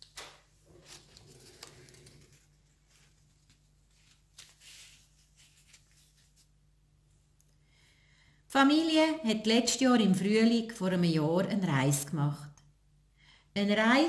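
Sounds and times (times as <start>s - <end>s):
paper rustling and scraping: 0.2s - 6.6s.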